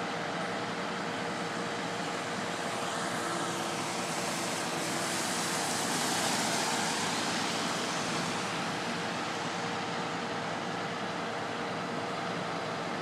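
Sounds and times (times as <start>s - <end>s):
steady traffic hum: 0.0s - 13.0s
tyres hissing on wet pavement: 0.5s - 12.9s.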